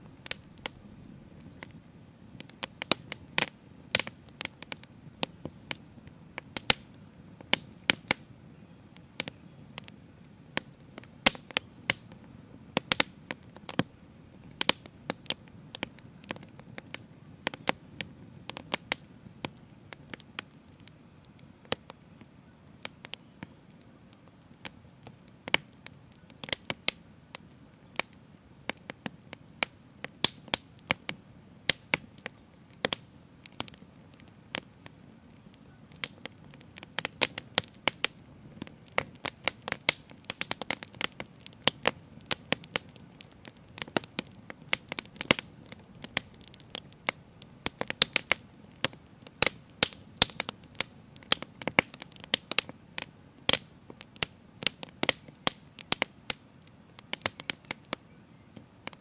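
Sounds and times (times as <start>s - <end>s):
low rush of flame: 0.0s - 8.4s
fire crackling and popping: 0.0s - 59.0s.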